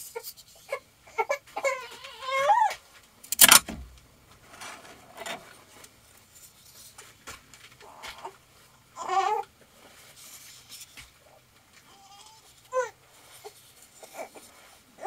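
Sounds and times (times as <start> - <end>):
faint handling noise: 2.8 - 8.7
loud brief clunk: 3.3 - 4.0.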